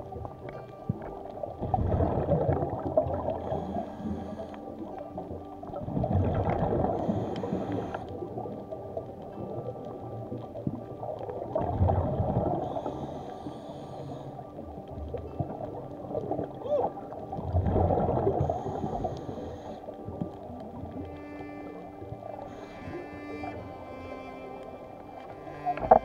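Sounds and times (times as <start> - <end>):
regulator exhaled bubbles gurgling: 1.6 - 3.8, 5.7 - 8.6, 11.3 - 12.9, 15.4 - 20.3
regulator hissing inhale: 3.2 - 4.9, 6.8 - 8.2, 12.6 - 14.6, 18.4 - 19.9.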